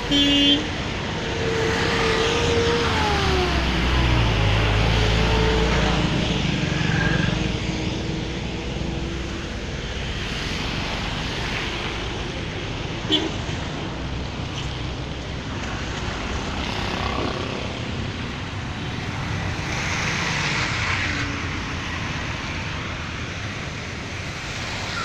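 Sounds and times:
vehicle engines rumbling: 0.0s - 25.0s.

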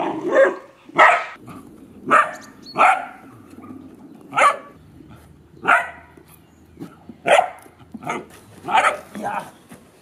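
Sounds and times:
puppy barking: 0.0s - 1.4s, 2.1s - 3.3s, 4.3s - 4.8s, 5.6s - 6.2s, 7.2s - 9.1s.

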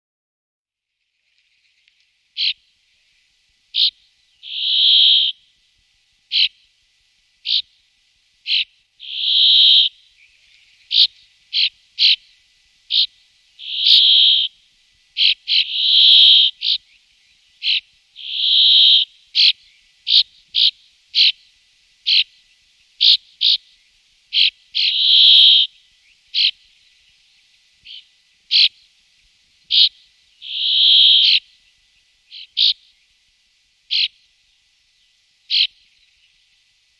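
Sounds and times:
short sharp bird calls: 2.4s - 2.7s, 3.7s - 5.5s, 6.3s - 6.7s, 7.4s - 7.8s, 8.4s - 14.6s, 15.2s - 17.0s, 17.6s - 22.4s, 23.0s - 26.8s, 27.8s - 28.9s, 29.7s - 31.7s, 32.3s - 33.1s, 33.9s - 34.3s, 35.5s - 36.3s
bird buzzy wheezing call: 3.8s - 5.4s, 6.3s - 6.6s, 8.4s - 10.0s, 10.9s - 12.3s, 12.9s - 14.6s, 15.2s - 17.0s, 17.6s - 21.4s, 24.3s - 26.6s, 27.8s - 28.9s, 29.7s - 31.5s, 33.9s - 34.2s.

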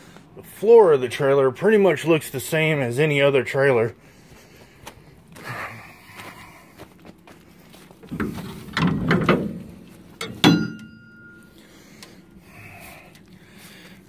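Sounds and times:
metal door scraping and rattling: 8.1s - 10.6s
metallic clang ringing: 10.2s - 11.6s.

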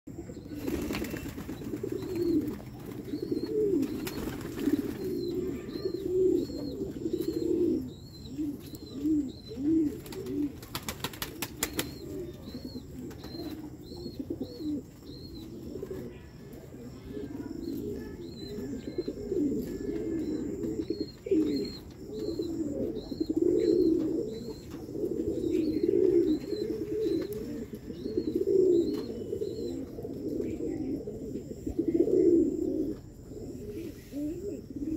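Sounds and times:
pigeons cooing: 0.1s - 34.9s
wings flapping: 0.6s - 3.0s, 3.8s - 5.2s, 10.0s - 12.0s.

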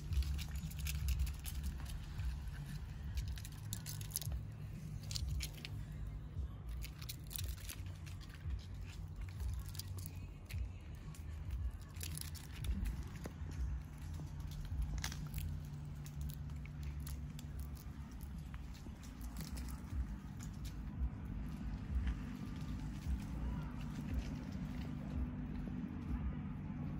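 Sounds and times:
claws scratching on bark: 0.0s - 6.0s, 6.8s - 20.9s
squirrel gnawing nuts: 0.0s - 26.9s
steady low rumble: 0.0s - 26.9s.

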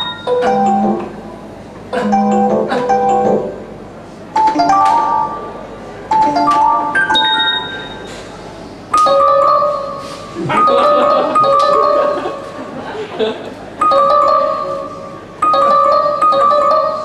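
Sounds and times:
chime-like keyboard notes: 0.0s - 1.1s, 2.0s - 3.6s, 4.4s - 8.2s, 9.0s - 12.6s, 13.8s - 17.0s.

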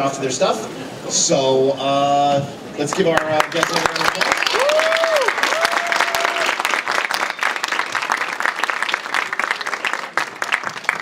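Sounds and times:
audience clapping: 2.9s - 11.0s
person cheering: 4.4s - 6.6s.

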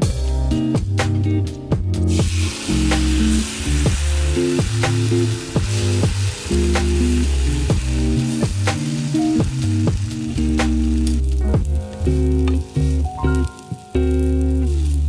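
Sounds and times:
background music with steady beat: 0.0s - 14.8s
food sizzling in a frying pan: 2.1s - 15.0s.

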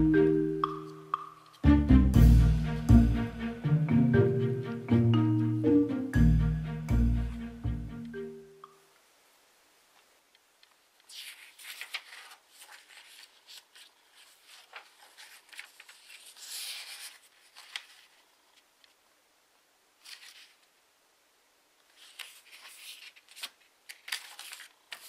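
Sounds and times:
paper rustling and crinkling: 10.6s - 19.0s, 20.0s - 20.7s, 21.8s - 25.0s.

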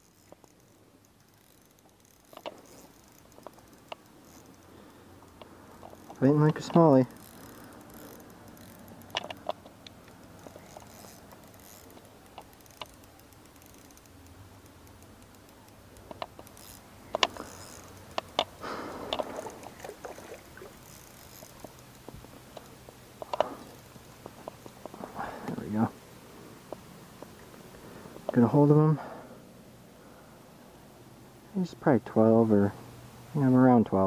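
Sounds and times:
fishing reel clicks and rattles: 0.0s - 24.9s.

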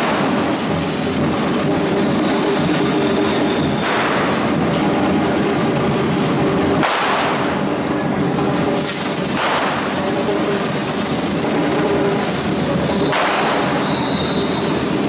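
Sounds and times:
firecrackers crackling and banging: 0.0s - 7.7s, 8.6s - 15.0s
hissing sprays of sparks: 8.6s - 15.0s.

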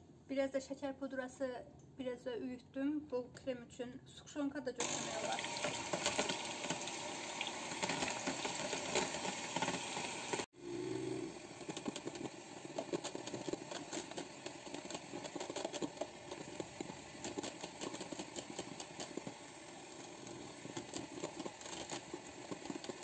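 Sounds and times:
electric hand mixer running: 4.8s - 23.0s.

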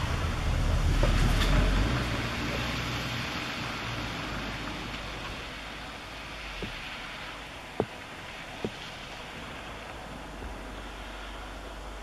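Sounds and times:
rain falling: 0.0s - 12.0s
sharp taps: 7.8s - 8.0s, 8.6s - 8.8s.

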